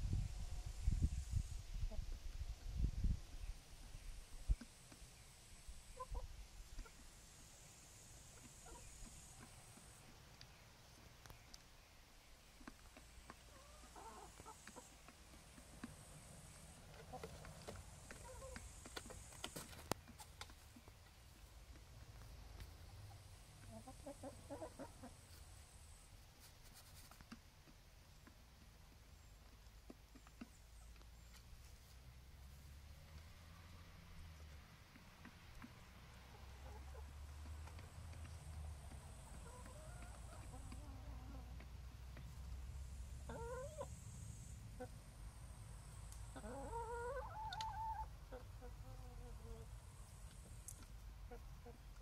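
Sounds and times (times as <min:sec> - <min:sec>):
chickens calling: 0:03.8 - 0:07.2, 0:08.1 - 0:26.0, 0:34.4 - 0:49.8, 0:50.4 - 0:52.0
hen clucking: 0:05.8 - 0:07.0, 0:08.3 - 0:11.6, 0:12.6 - 0:20.9, 0:22.6 - 0:25.5, 0:34.9 - 0:37.9, 0:38.8 - 0:41.7, 0:43.2 - 0:44.0, 0:44.7 - 0:45.1, 0:46.2 - 0:49.7, 0:51.2 - 0:52.0.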